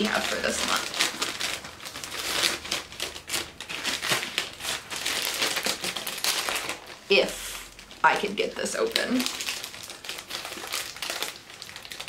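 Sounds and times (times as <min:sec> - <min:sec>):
paper wrapping crinkling: 0:00.0 - 0:12.0.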